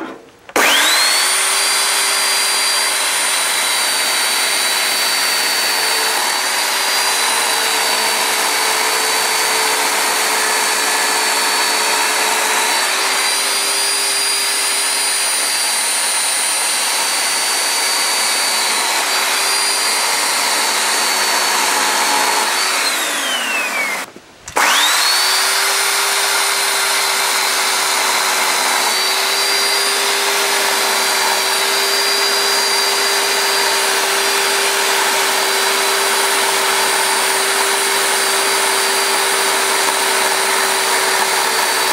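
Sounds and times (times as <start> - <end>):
chainsaw cutting wood: 0.0 - 41.9.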